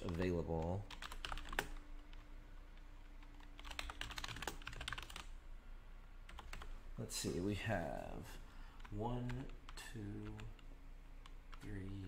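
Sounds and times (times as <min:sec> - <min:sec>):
keyboard typing clicks: 0:00.0 - 0:02.2, 0:03.2 - 0:05.3, 0:06.3 - 0:06.7.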